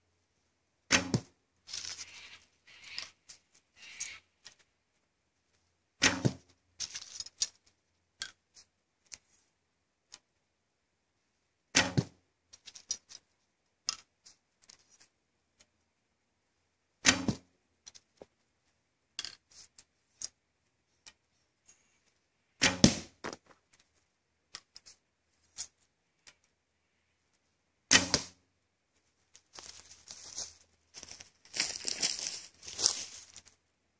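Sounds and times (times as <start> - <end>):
bow string thump: 22.6 - 23.4
footsteps in dry leaves: 29.5 - 33.5.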